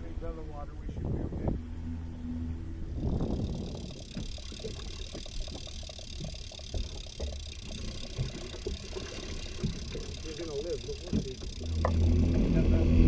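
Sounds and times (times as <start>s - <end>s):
outboard motor running: 0.0s - 13.0s
small knocks and clicks: 3.4s - 12.4s.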